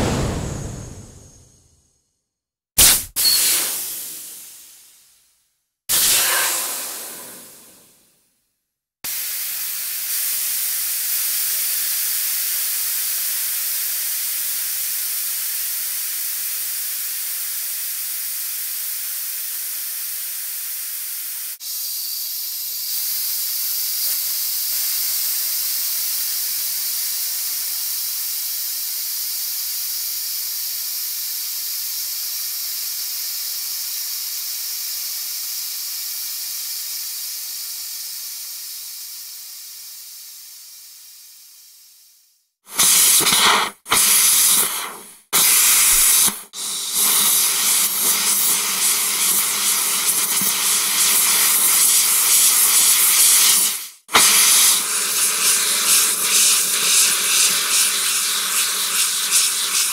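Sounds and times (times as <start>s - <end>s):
compressed air hissing: 2.8s - 4.8s, 5.9s - 8.0s, 18.8s - 42.1s, 42.7s - 59.9s.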